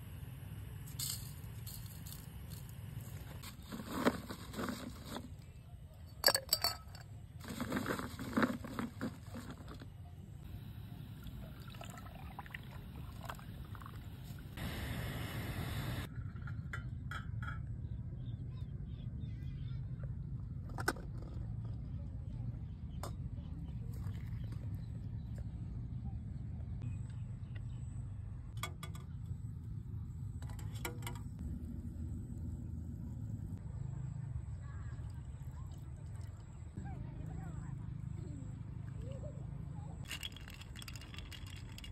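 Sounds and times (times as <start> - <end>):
milk pouring trickle: 11.1 - 14.2
ice cubes clattering into glass: 40.1 - 41.9.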